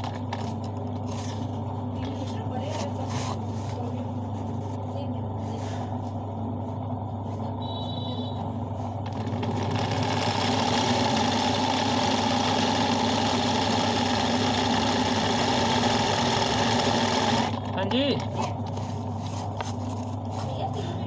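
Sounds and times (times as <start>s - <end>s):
sewing machine running: 9.0s - 18.2s.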